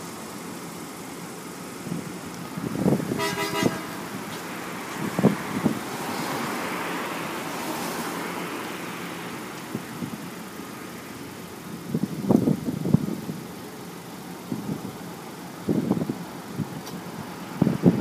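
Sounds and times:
vehicle horn toot: 0:03.1 - 0:04.1
car passing by: 0:03.2 - 0:09.8.

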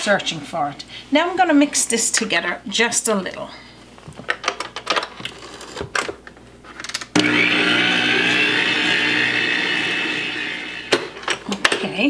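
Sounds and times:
stand mixer motor whining: 0:07.2 - 0:11.2.

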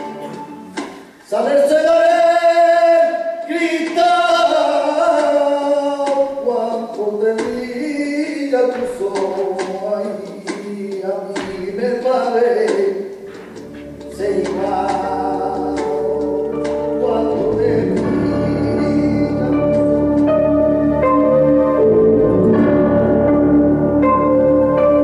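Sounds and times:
man singing long held notes: 0:14.1 - 0:20.3.

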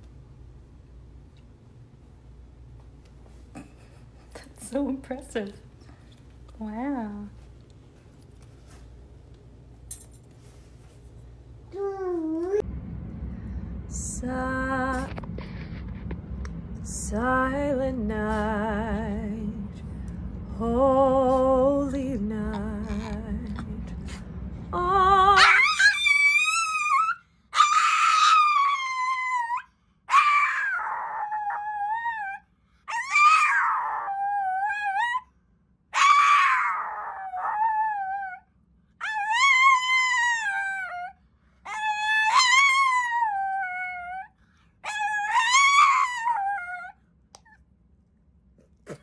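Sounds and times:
small dog howling: 0:25.4 - 0:35.2, 0:35.9 - 0:47.6.

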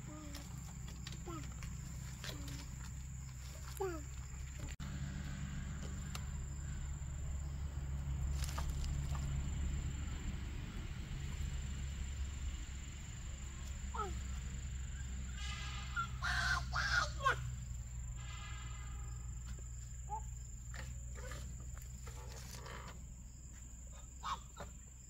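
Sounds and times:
high insect drone: 0:00.0 - 0:25.0
harsh animal calls: 0:14.9 - 0:17.5.

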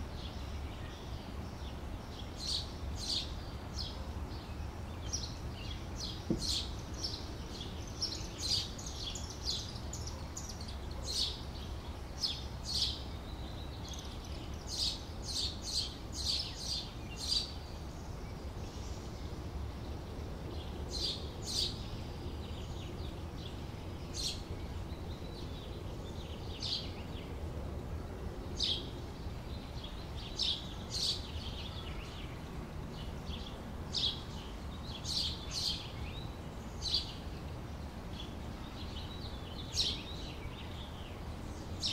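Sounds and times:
small birds chirping: 0:00.0 - 0:27.4, 0:28.4 - 0:41.9.

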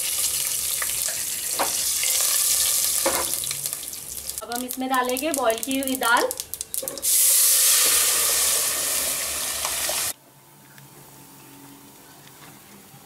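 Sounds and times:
loud sizzle in hot oil: 0:00.0 - 0:10.2.

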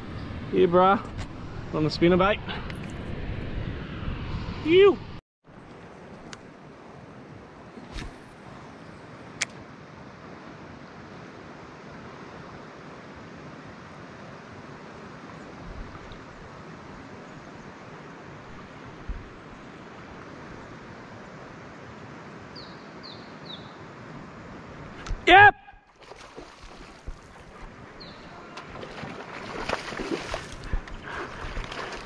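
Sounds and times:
wind or moving water: 0:00.0 - 0:32.0
bird chirping: 0:22.6 - 0:23.8, 0:28.0 - 0:28.5.

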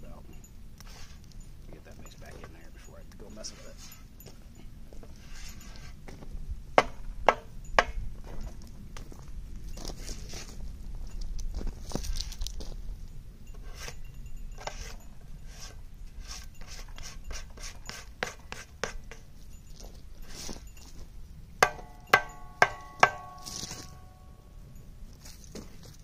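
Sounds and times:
ringing metallic taps: 0:06.8 - 0:08.6, 0:21.6 - 0:24.9.

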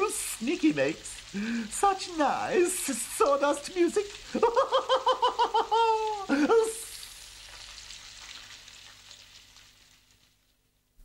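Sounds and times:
puppet character laughing: 0:04.3 - 0:06.9.

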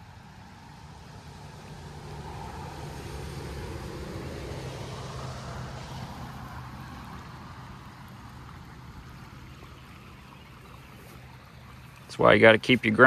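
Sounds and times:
muddy creek rushing: 0:00.0 - 0:13.0
passing vehicle rumble: 0:00.0 - 0:13.0.

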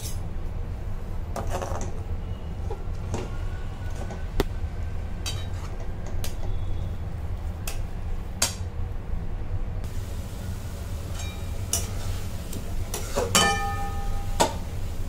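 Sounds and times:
metal spatula scraping a pan: 0:05.2 - 0:05.8, 0:11.2 - 0:14.5.

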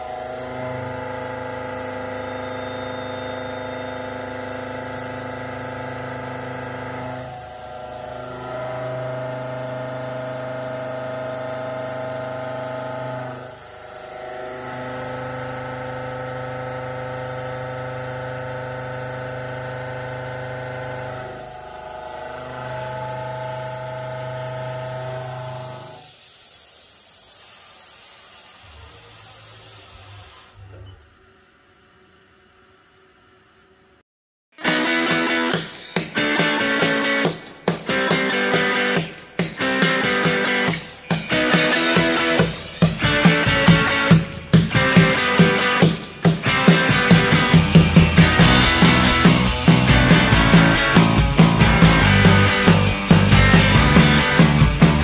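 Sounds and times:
hiss: 0:21.3 - 0:30.7
milling cutter humming: 0:39.8 - 0:55.0.

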